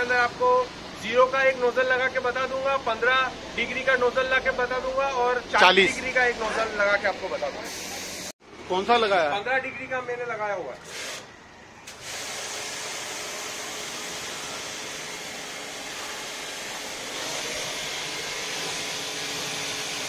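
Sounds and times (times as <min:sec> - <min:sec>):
pressure washer spraying water: 0:07.6 - 0:08.3, 0:11.9 - 0:20.0.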